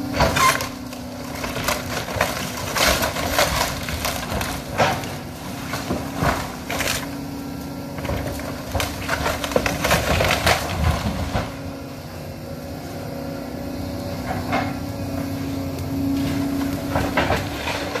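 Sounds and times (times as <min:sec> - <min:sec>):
excavator engine and hydraulics: 0:00.0 - 0:18.0
debris crunching: 0:00.1 - 0:07.2, 0:08.0 - 0:11.7, 0:16.2 - 0:18.0
timber cracking and splintering: 0:00.1 - 0:07.2, 0:08.0 - 0:11.7.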